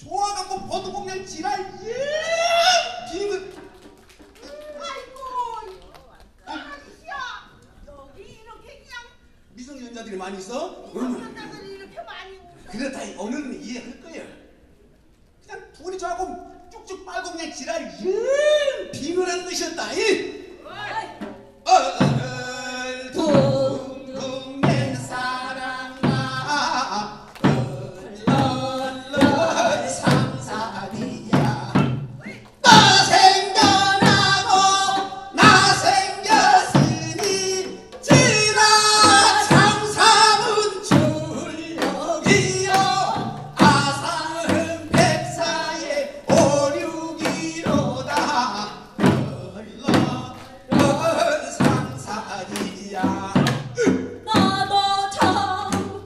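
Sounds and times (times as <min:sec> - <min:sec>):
drum strokes: 0:00.0 - 0:04.5, 0:18.8 - 0:56.0
man and woman singing: 0:00.0 - 0:04.7, 0:17.5 - 0:56.0.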